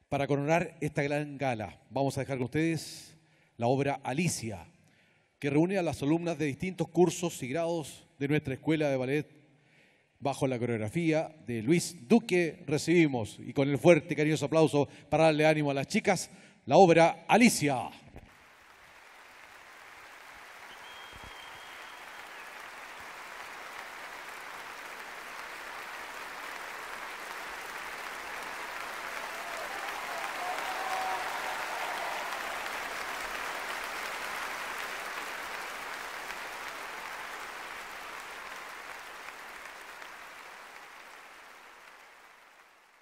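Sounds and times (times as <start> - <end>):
audience applauding: 18.3 - 43.0.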